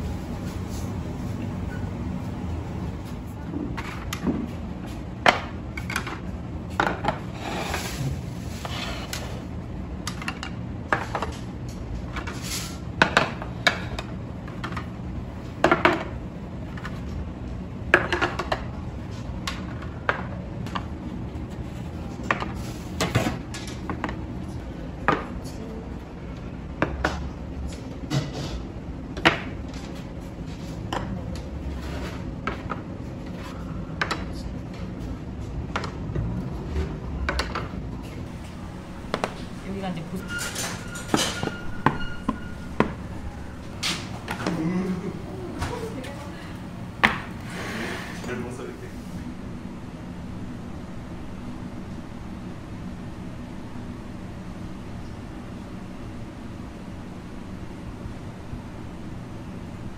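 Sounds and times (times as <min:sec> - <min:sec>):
low background hum: 0:00.0 - 0:59.9.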